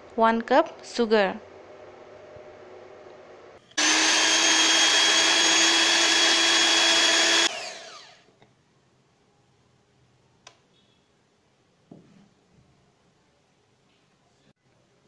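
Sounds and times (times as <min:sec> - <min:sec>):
hand mixer motor whine: 0:03.8 - 0:08.3.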